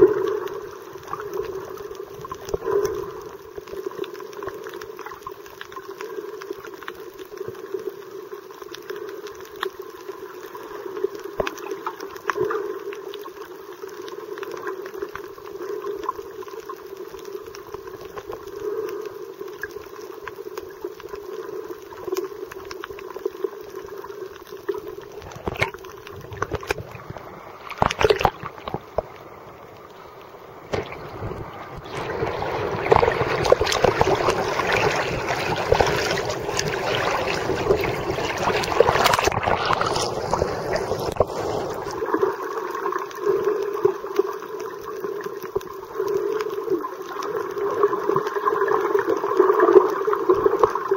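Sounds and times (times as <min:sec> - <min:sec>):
underwater clicks and crackles: 0:00.0 - 0:50.9
underwater hum: 0:00.0 - 0:50.9
water splashing and sloshing: 0:24.4 - 0:44.3.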